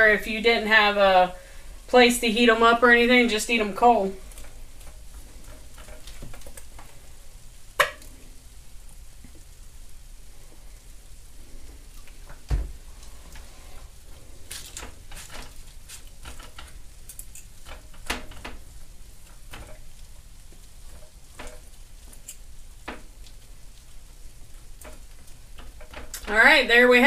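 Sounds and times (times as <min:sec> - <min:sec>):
thump: 0:12.5 - 0:12.8.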